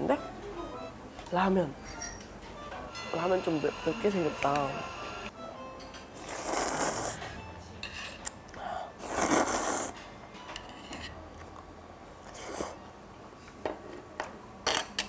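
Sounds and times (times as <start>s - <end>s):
noodles slurped: 6.2s - 7.2s, 9.0s - 9.9s.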